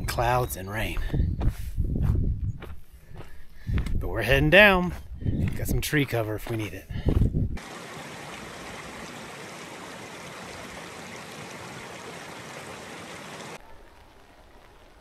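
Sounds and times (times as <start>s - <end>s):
rushing water: 7.6s - 15.0s.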